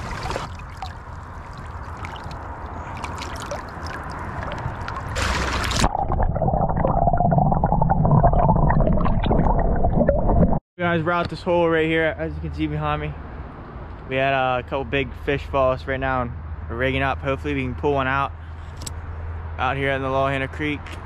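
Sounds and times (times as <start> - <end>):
creek water splashing: 0.0 - 6.2
underwater gurgling: 0.0 - 10.6.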